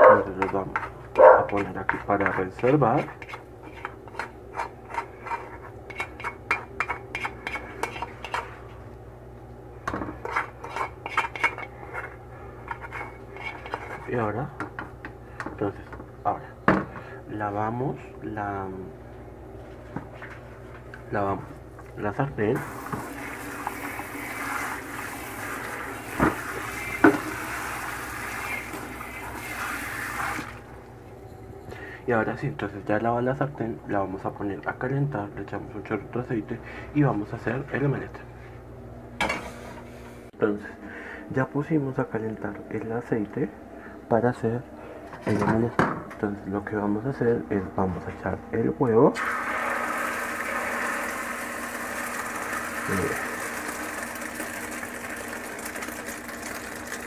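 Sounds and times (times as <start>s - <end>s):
spoon scraping a frying pan: 0.4s - 8.7s, 10.0s - 14.1s.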